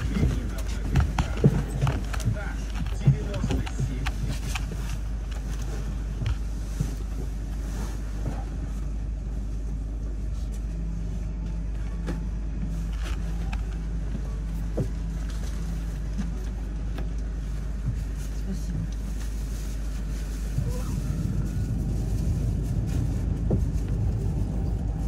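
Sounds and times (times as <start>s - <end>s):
light rattles and clicks: 0.0s - 7.6s
bus engine low rumble: 0.0s - 25.0s
faint hum: 0.0s - 25.0s.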